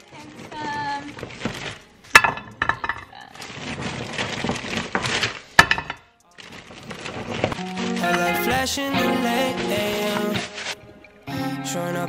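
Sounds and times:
dishes and utensils clinking: 0:01.2 - 0:03.3.

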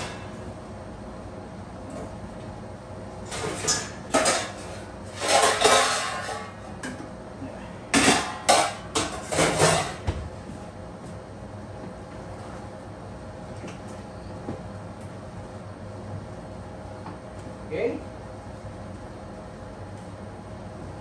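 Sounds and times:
metal pots and lids clattering: 0:03.3 - 0:07.0, 0:07.9 - 0:10.0.

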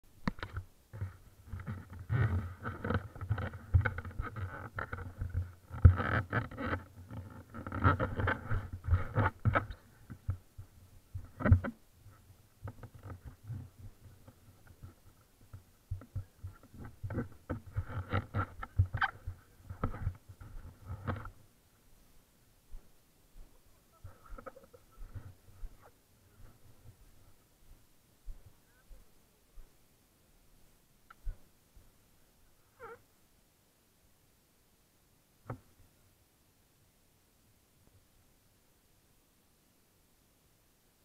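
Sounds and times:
camera handling bumps and rubbing: 0:12.6 - 0:21.4.

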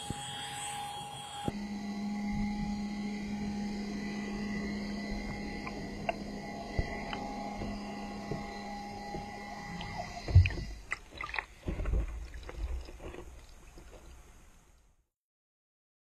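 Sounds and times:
hum with held tones: 0:00.0 - 0:15.0
housing knocking against hull: 0:05.2 - 0:10.8
water sloshing: 0:05.2 - 0:14.5.

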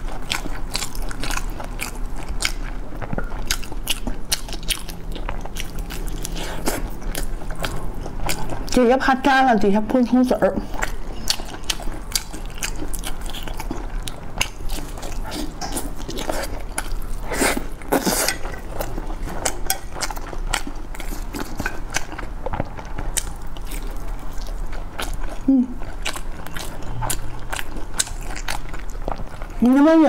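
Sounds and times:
biting and chewing food: 0:00.0 - 0:08.9, 0:10.6 - 0:30.0.

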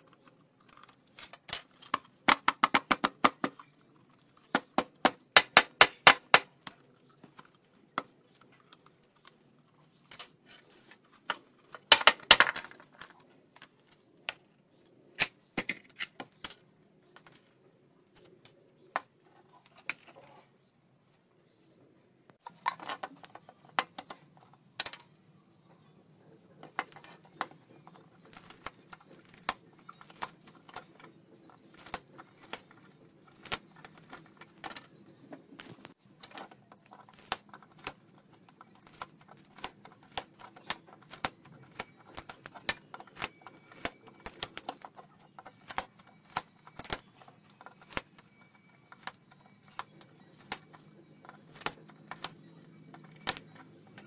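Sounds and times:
cutters snipping copper wire: 0:38.6 - 0:44.8, 0:45.4 - 0:48.2.

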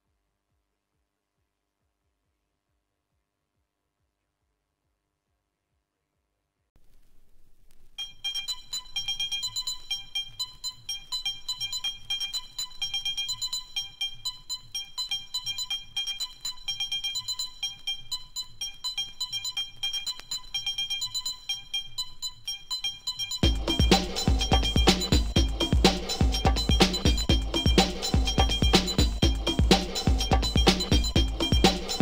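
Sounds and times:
fast dance music percussion: 0:23.2 - 0:32.0.

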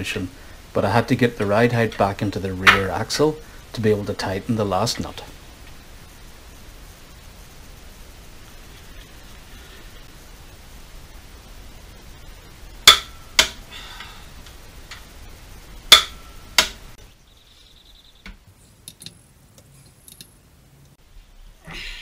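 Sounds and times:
torque wrench clicking: 0:18.8 - 0:20.4.

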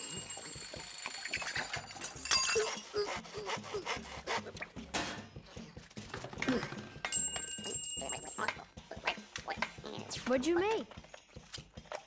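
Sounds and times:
high ringing chime: 0:00.0 - 0:02.8, 0:07.1 - 0:08.4
hand tools clicking and scraping: 0:00.0 - 0:12.0.

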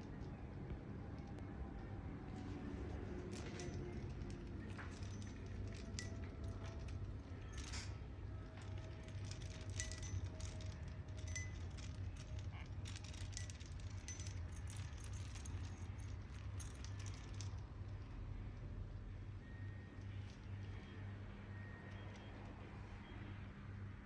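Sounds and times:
steady low hum: 0:00.0 - 0:24.0
chain and small bell jingling: 0:03.2 - 0:18.2.

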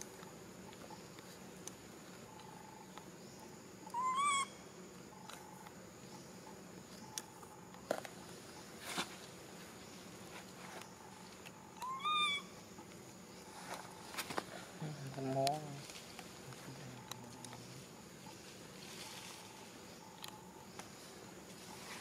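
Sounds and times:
infant macaque coo calls: 0:03.8 - 0:04.6, 0:11.8 - 0:12.5.

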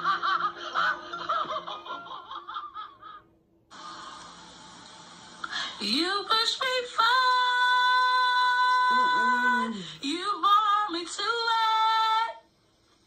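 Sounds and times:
person singing unaccompanied: 0:05.9 - 0:11.8.

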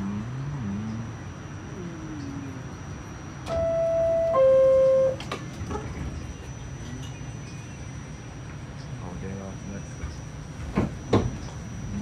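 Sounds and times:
subway door-closing chime: 0:03.4 - 0:05.9.

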